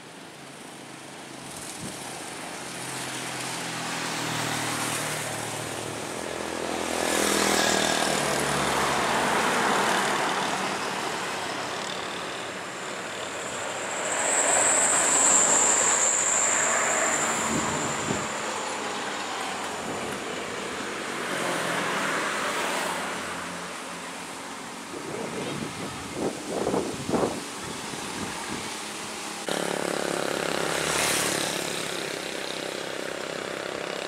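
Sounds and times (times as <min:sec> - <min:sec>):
car engines passing: 0:01.2 - 0:34.0
motorcycle engines passing: 0:01.4 - 0:34.0
high steady whine: 0:08.0 - 0:21.3.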